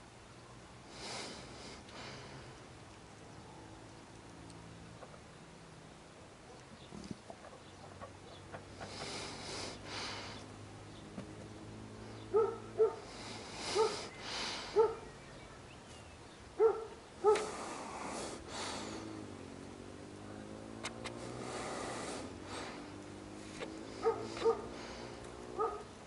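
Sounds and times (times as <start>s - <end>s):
breathy rushes of noise: 17.4s - 19.4s, 21.1s - 25.6s.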